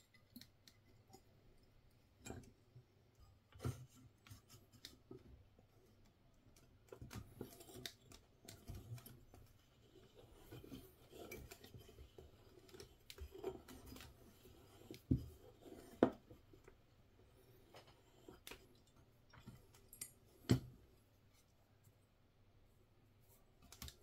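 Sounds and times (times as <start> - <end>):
metallic clicks and scrapes: 6.5 - 20.5.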